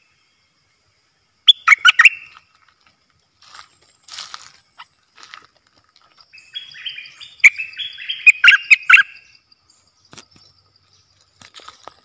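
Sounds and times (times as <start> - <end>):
bird singing: 0.0 - 2.7, 6.1 - 12.0.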